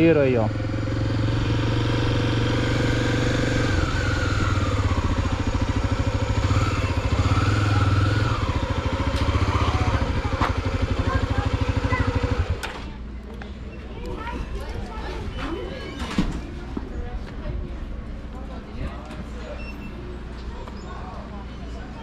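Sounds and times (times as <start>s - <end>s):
motorcycle engine running at low revs: 0.0s - 12.7s.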